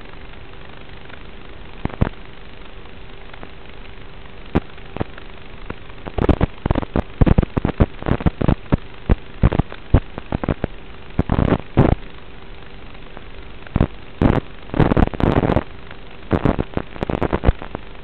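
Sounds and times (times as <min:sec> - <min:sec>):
faint low hum: 0:00.0 - 0:18.0
radio static hiss: 0:00.0 - 0:18.0
crackling pops: 0:01.8 - 0:02.2, 0:03.3 - 0:12.0, 0:13.0 - 0:17.9.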